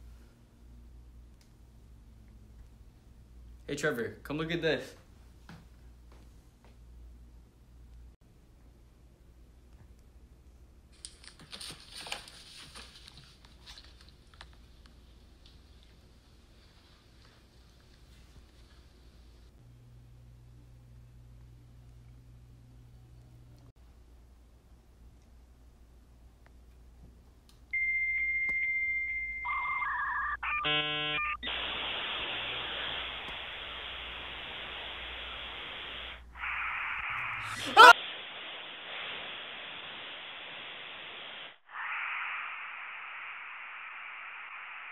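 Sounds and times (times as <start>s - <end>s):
faint hum: 14.1s - 44.9s
steady high electronic beep: 27.8s - 31.6s.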